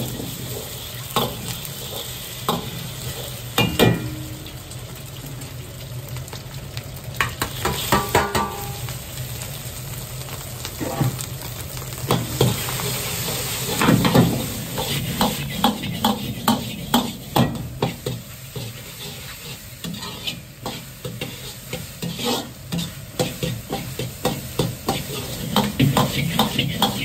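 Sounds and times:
egg sizzling in hot oil: 0.0 - 27.0
metal ladle scraping wok: 12.1 - 27.0.

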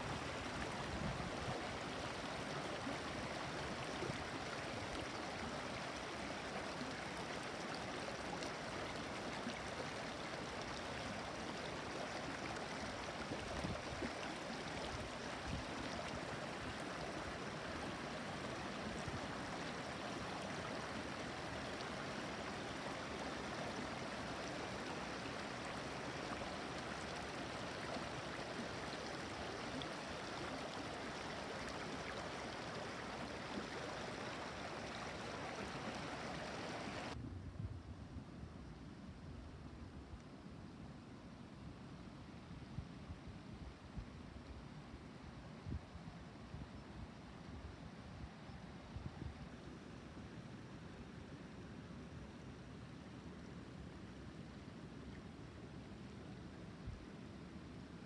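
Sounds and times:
stream babbling over stones: 0.0 - 37.2.

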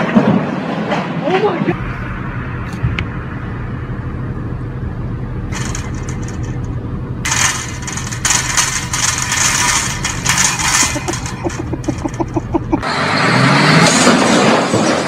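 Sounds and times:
car engine idling: 1.7 - 12.9.

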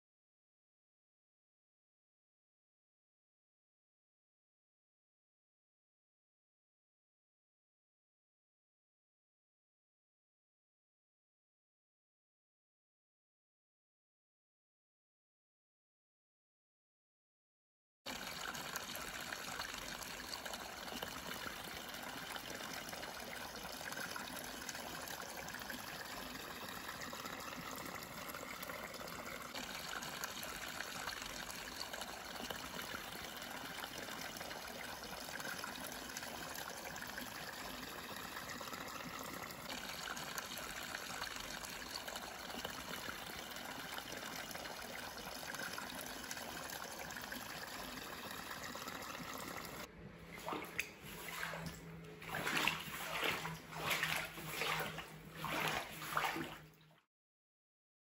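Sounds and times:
water running and trickling: 18.1 - 56.9.

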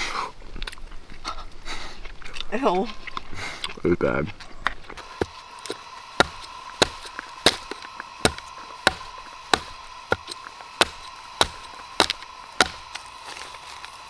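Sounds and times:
hatchet chopping wood: 5.0 - 13.6.

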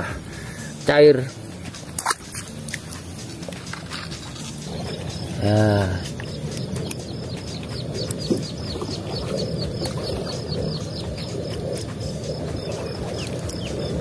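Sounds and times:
low background rumble: 0.0 - 14.0
rapid high chirping: 0.8 - 14.0.

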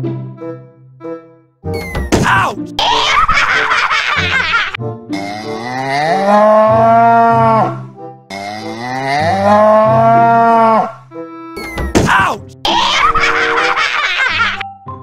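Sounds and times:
soft background music: 0.0 - 15.0
cow mooing: 5.2 - 11.0.

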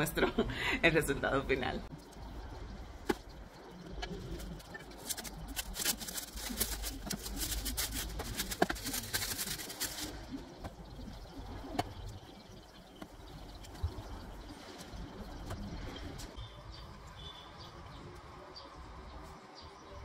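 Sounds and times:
plastic bag crinkling: 4.2 - 10.4.

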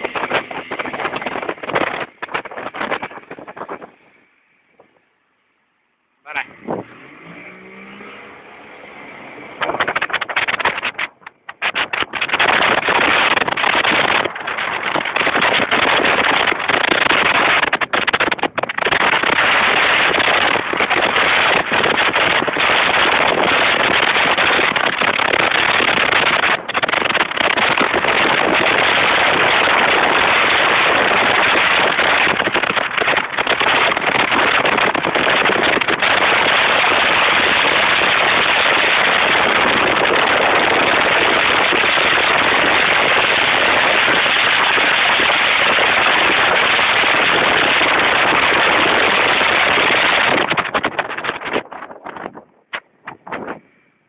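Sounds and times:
wind rush over microphone: 0.0 - 5.0, 6.3 - 54.0
motorboat engine: 0.0 - 5.2, 6.3 - 51.8.

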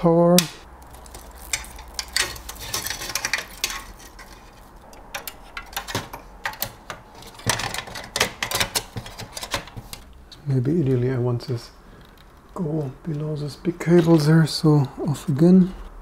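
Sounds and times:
metal bracket clicks and rattles: 0.4 - 10.1.

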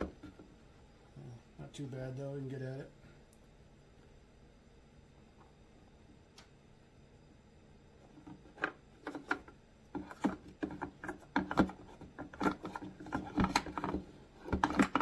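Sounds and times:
handling plastic parts: 8.1 - 15.0.

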